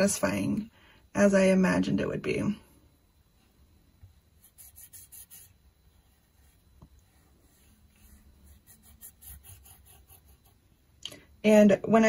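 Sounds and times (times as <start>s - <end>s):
fingertip rubbing on clay: 4.4s - 10.6s.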